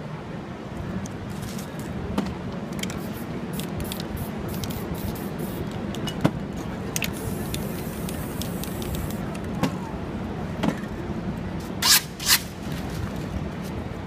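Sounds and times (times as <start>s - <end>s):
low street rumble: 0.0s - 14.0s
spray paint hissing: 2.7s - 5.8s, 7.0s - 9.3s.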